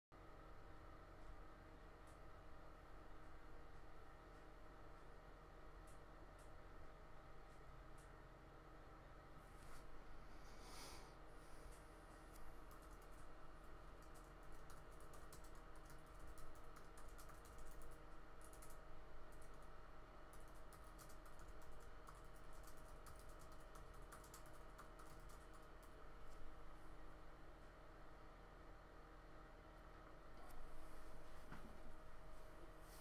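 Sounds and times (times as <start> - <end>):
low electrical hum: 0.1 - 33.0
typing on keyboard: 12.6 - 19.7, 20.3 - 26.4.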